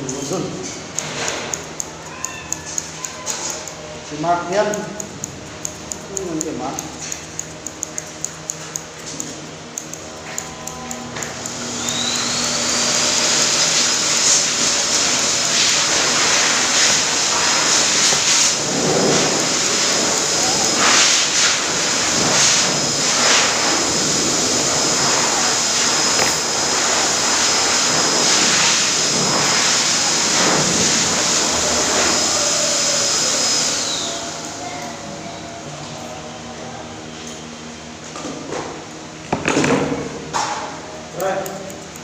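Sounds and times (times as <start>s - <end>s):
pet hair dryer motor whine: 9.8s - 36.6s.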